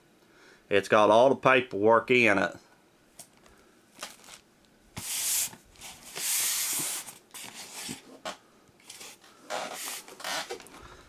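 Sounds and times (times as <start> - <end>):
plastic bag crinkling: 3.3 - 6.1.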